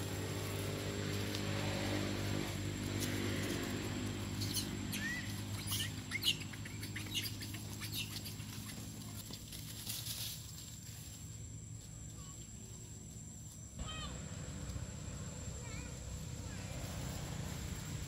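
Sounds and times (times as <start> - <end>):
monkeys squeaking and chirping: 4.3 - 9.0.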